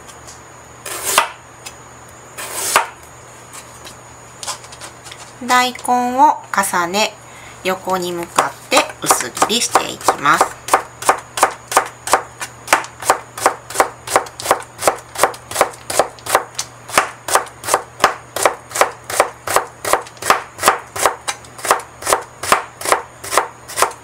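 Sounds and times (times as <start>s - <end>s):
knife chopping on plastic board: 1.0s - 1.4s, 2.6s - 3.0s, 8.3s - 24.0s.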